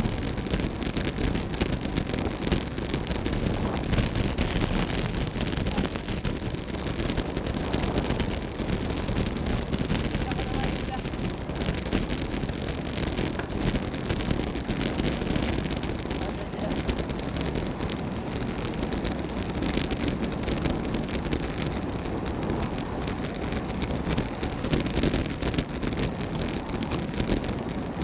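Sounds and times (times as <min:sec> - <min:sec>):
tyre road noise: 0:00.0 - 0:28.0
wind buffeting microphone: 0:00.0 - 0:28.0.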